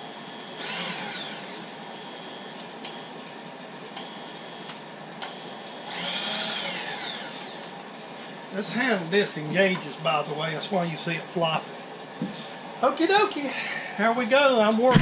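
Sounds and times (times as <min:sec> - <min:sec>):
feed motor whining: 0:00.0 - 0:10.6.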